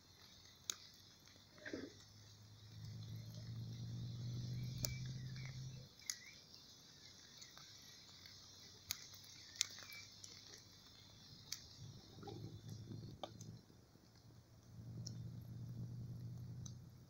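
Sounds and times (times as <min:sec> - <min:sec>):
crickets chirping: 0:00.0 - 0:17.0
low buzzing hum: 0:01.3 - 0:17.0
short bird-like chirps: 0:03.2 - 0:12.9
sharp clicks: 0:04.4 - 0:06.4, 0:07.4 - 0:16.9.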